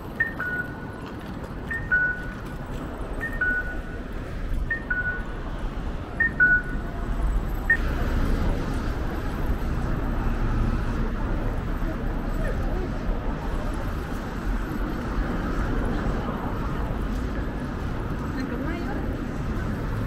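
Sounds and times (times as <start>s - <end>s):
street traffic noise: 0.0s - 20.0s
crossing signal electronic chime: 4.7s - 5.3s, 6.2s - 6.8s.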